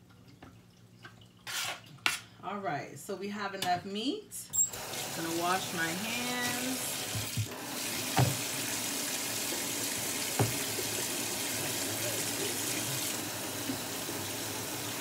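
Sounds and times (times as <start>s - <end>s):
faucet running into steel sink: 4.7s - 15.0s.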